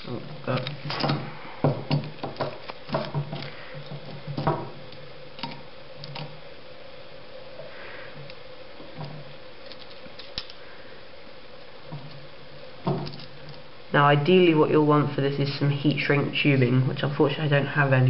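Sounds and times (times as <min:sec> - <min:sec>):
faint steady hum: 0:00.0 - 0:18.0
metal clips clicking and tapping: 0:09.6 - 0:10.6.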